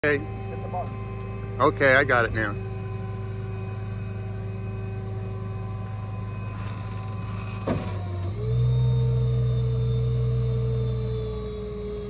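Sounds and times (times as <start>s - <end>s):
hydraulics working: 0.0s - 12.0s
tow truck engine humming: 0.0s - 12.0s
clunk: 6.5s - 8.4s.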